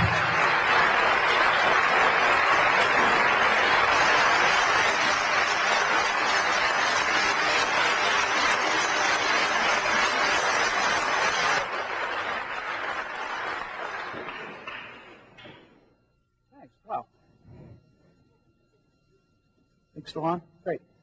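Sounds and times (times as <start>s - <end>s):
audience applauding: 0.0s - 15.5s.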